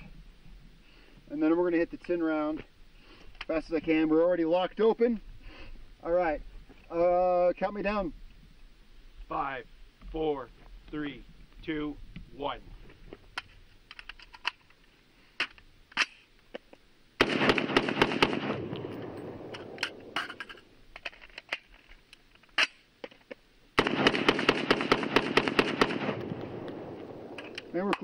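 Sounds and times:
rifle gunshots: 0:17.2 - 0:20.3, 0:23.8 - 0:28.0
magazine handling clicks: 0:17.8 - 0:23.2, 0:23.8 - 0:28.0.

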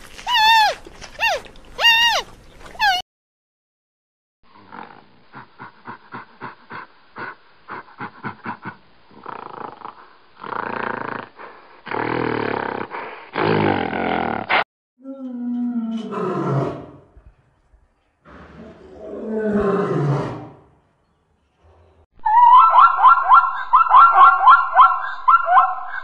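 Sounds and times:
gorilla roaring: 0:11.9 - 0:17.1, 0:18.3 - 0:20.7.

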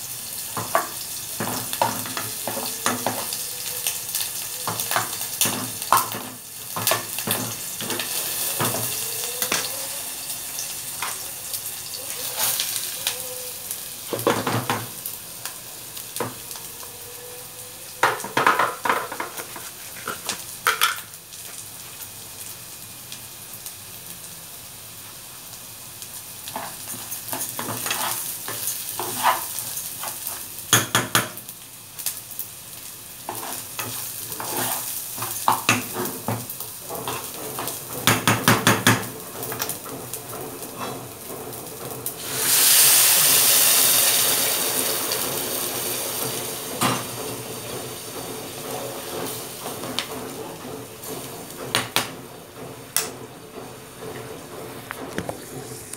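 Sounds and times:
food sizzling in a pot: 0:00.0 - 0:55.9
spoon scraping and clinking pot: 0:26.5 - 0:30.4, 0:33.3 - 0:36.2
liquid hissing in hot pot: 0:42.1 - 0:46.7.

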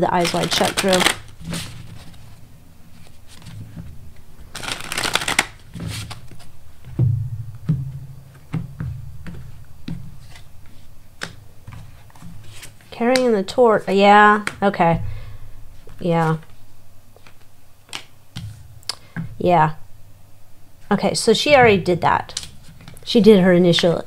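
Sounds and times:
cards riffling: 0:00.1 - 0:02.3, 0:04.4 - 0:06.5.

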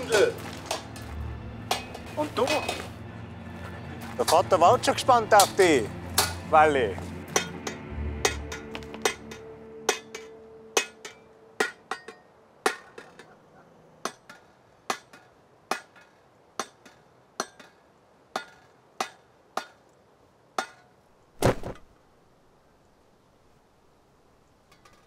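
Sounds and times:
hammer tapping on metal: 0:07.3 - 0:13.4.

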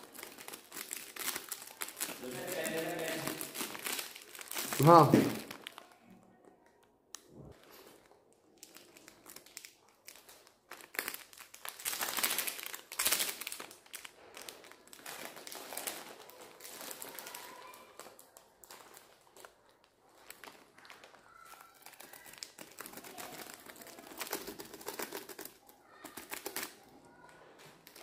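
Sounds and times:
plastic packet crinkling: 0:00.0 - 0:28.0.

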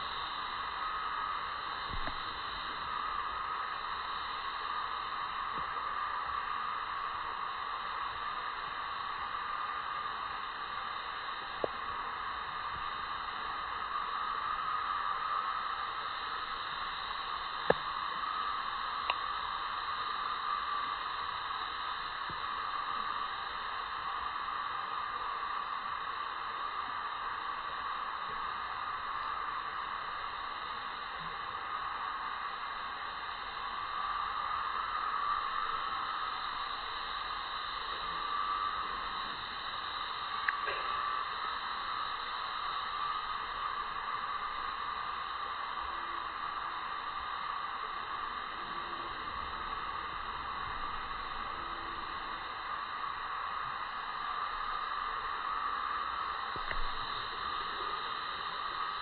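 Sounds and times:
steady background hiss: 0:00.0 - 0:59.0.

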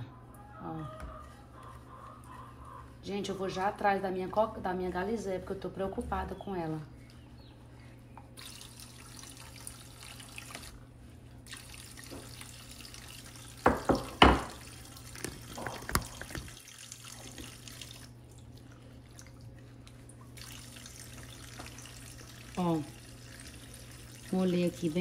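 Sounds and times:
glass dish knocking on stone: 0:13.6 - 0:14.6
tap running into sink: 0:13.6 - 0:16.6.

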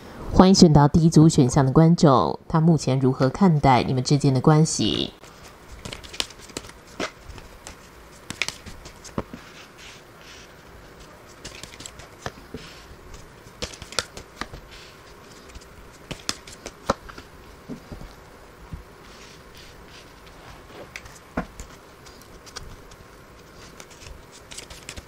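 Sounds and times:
cards being shuffled: 0:05.2 - 0:18.2, 0:19.0 - 0:25.0
cards snapping and tapping on table: 0:05.8 - 0:09.3, 0:13.6 - 0:14.6, 0:16.1 - 0:17.0.

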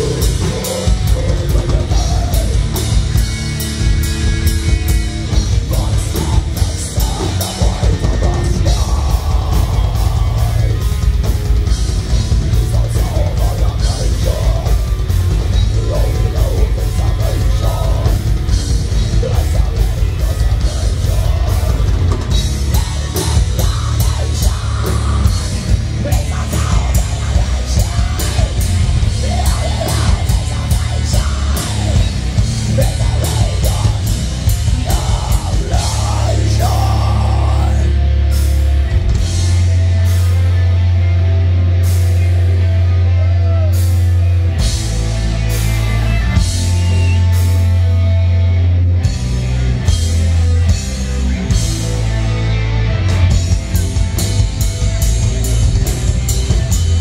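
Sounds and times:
person singing: 0:00.0 - 0:03.2, 0:05.5 - 0:11.2, 0:12.5 - 0:38.1
heavy metal band playing: 0:00.0 - 0:57.0.

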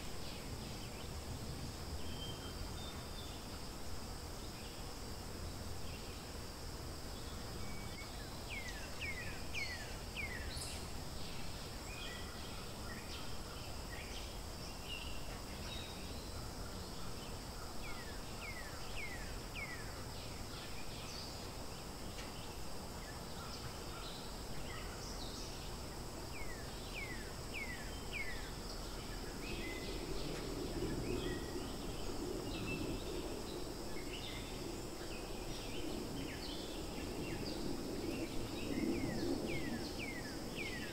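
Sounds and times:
high insect drone: 0:00.0 - 0:40.9.

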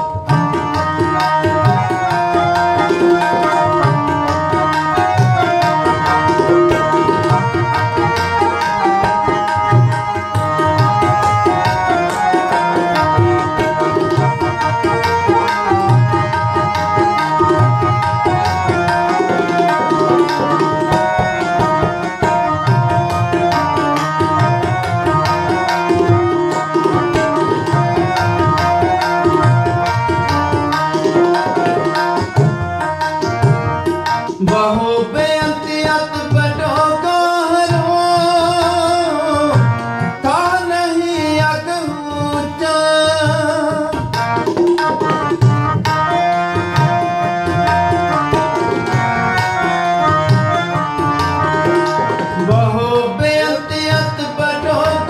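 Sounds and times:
harmonium held notes: 0:00.0 - 0:55.0
tabla playing fast rhythm: 0:00.0 - 0:55.0
person singing: 0:34.4 - 0:44.3, 0:51.6 - 0:55.0.

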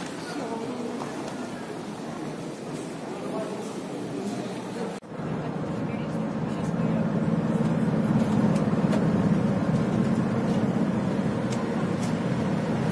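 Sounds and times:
road and engine rumble inside vehicle: 0:05.0 - 0:12.9.

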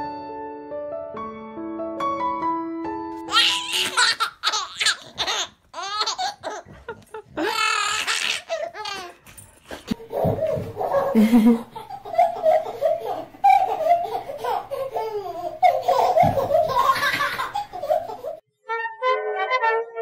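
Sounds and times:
music: 0:00.0 - 0:03.3, 0:18.4 - 0:20.0
baby laughing: 0:03.3 - 0:18.4.

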